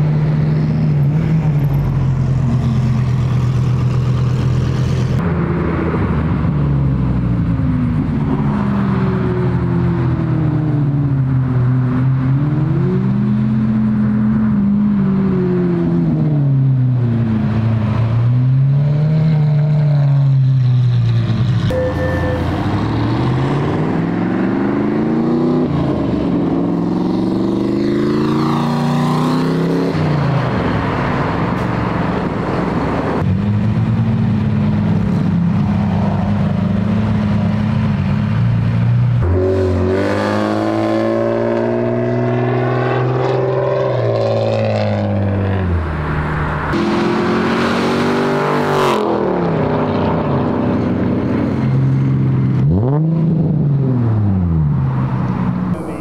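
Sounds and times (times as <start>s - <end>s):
cars accelerating past: 17.4s - 56.0s.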